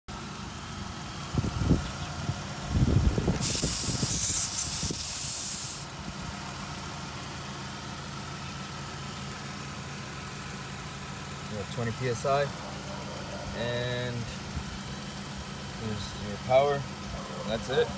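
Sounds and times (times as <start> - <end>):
air hissing from tire valve: 3.4 - 6.0.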